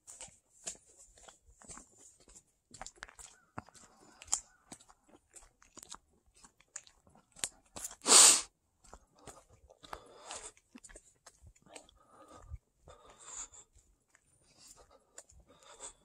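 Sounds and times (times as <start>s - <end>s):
footsteps crunching on gravel: 0.0s - 6.5s.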